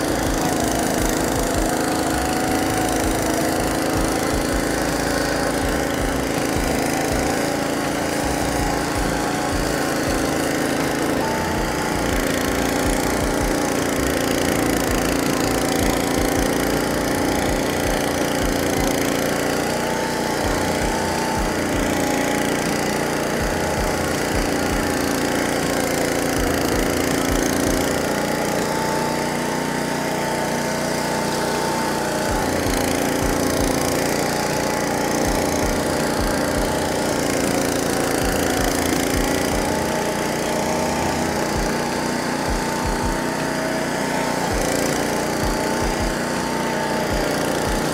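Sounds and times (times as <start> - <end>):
mower engine running under load: 0.0 - 47.9.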